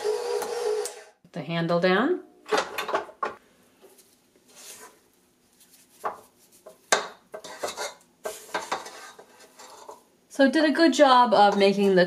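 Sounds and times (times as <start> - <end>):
spatula scraping metal bowl: 7.4 - 10.1.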